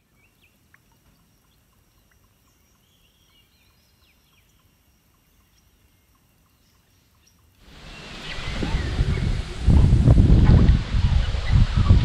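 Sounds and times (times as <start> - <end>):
steady low rumble: 7.7 - 12.0.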